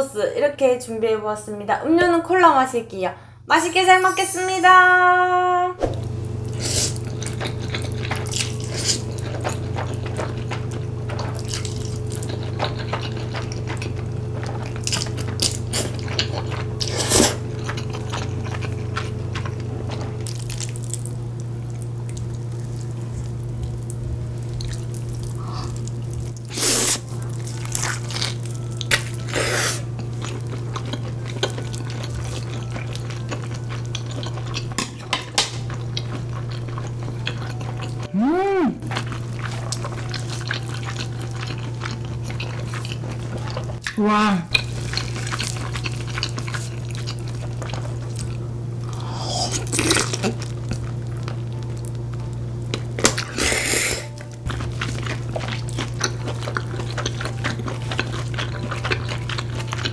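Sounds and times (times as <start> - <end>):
steady low hum: 0.0 - 59.9
chewing with mouth clicks: 6.5 - 38.2, 38.8 - 59.9
slurping noodles: 16.8 - 17.4.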